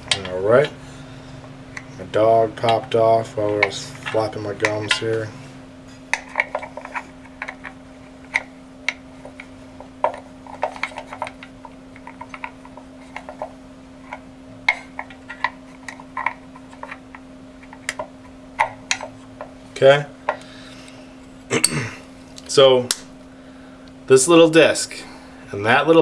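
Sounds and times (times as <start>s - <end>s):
metal parts clicking and tapping: 0.0s - 0.7s, 2.6s - 5.3s, 6.1s - 13.5s
steady low hum: 0.0s - 26.0s.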